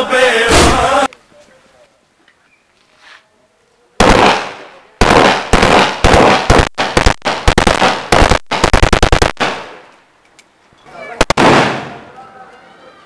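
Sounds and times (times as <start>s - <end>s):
rifle automatic fire: 4.0s - 9.8s, 11.2s - 12.0s
single rifle shot: 4.0s - 9.8s, 11.2s - 12.0s.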